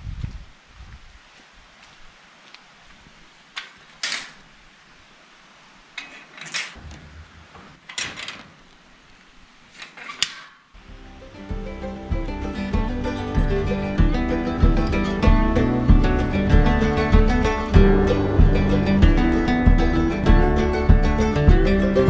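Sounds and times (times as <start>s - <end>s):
wire-mesh gate clanking: 3.6s - 4.5s, 6.0s - 8.8s, 9.7s - 10.9s
acoustic guitar music: 10.8s - 22.0s.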